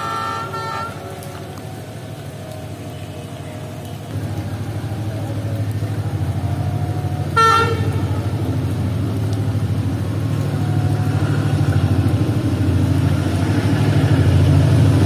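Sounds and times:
train horn toot: 0.0 - 1.3, 7.3 - 8.2
diesel engine rumble: 0.0 - 15.0.

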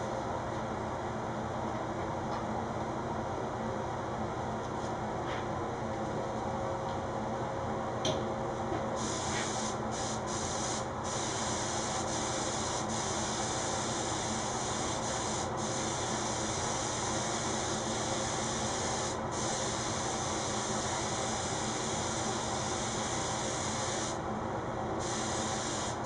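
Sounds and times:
spray gun hissing: 9.0 - 24.2, 25.0 - 26.0.

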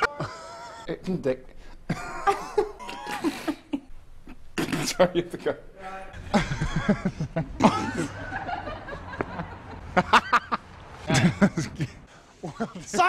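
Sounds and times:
man laughing hard: 0.0 - 0.9, 1.9 - 3.8, 6.2 - 13.0.

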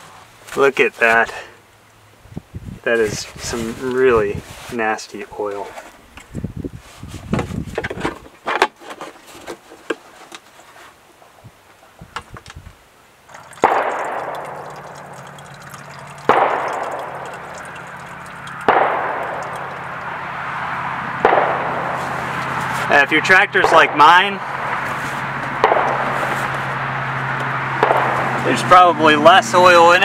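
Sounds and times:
oil pouring into plastic jug: 13.3 - 20.5, 22.0 - 22.9.

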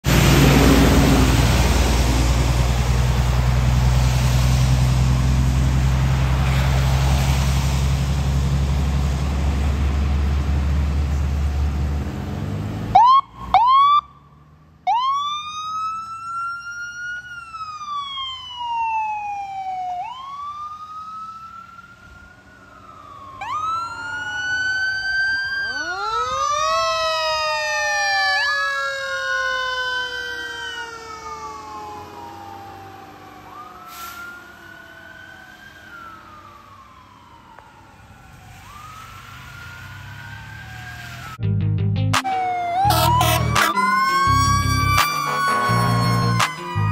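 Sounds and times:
diesel truck engine rumbling: 0.0 - 14.9, 31.3 - 46.9
electronic siren wailing: 22.7 - 41.4, 42.2 - 46.9
low siren winding up: 22.7 - 41.4, 42.2 - 46.9
short siren yelps: 25.6 - 27.3, 42.2 - 46.9.

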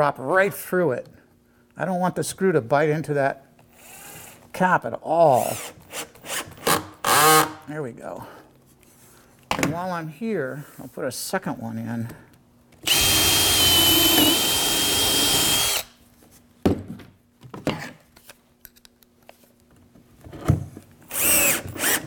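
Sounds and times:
cordless drill whining: 12.8 - 15.9, 21.1 - 22.0.

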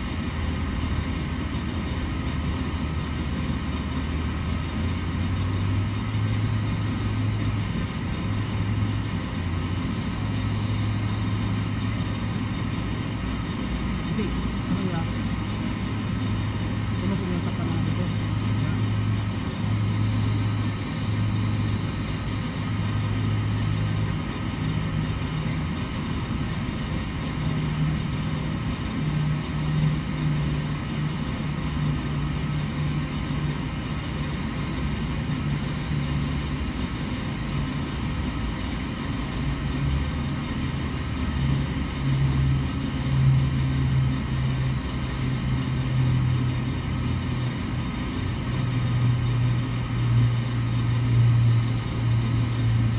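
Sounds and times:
low machine hum: 0.0 - 52.9.

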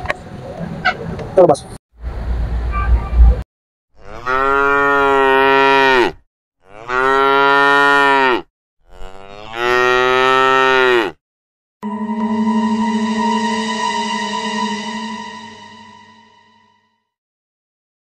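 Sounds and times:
cow mooing: 4.0 - 11.2
music: 11.8 - 17.2.

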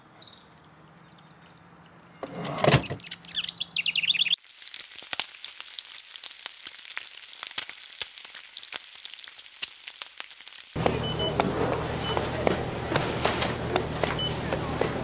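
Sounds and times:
bacon sizzling on grill pan: 4.4 - 10.8.

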